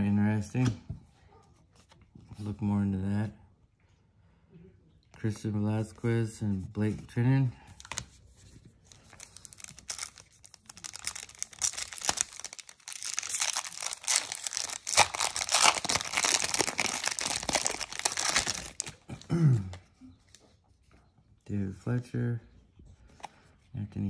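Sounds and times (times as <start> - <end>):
foil wrapper tearing and crinkling: 9.2 - 19.0.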